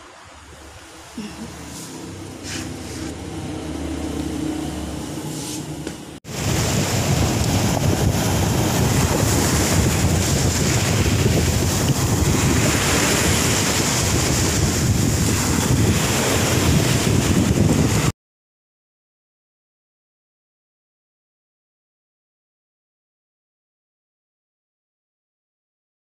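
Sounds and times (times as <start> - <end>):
shallow surf foaming: 0.0 - 18.1
wind buffeting microphone: 6.3 - 18.1.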